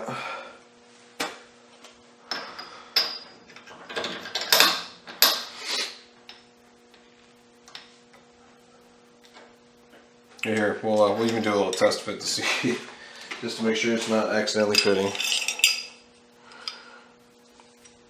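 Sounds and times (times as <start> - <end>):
faint steady hum: 0.0 - 18.0
metal tools clinking and scraping: 13.9 - 16.0.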